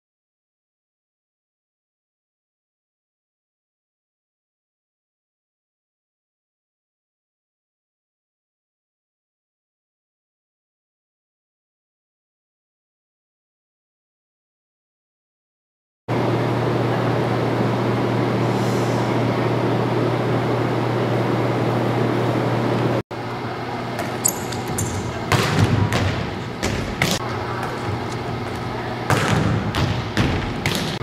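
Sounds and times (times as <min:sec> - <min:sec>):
gym background hum and hiss: 0:16.1 - 0:31.0
volleyball slaps: 0:24.0 - 0:31.0.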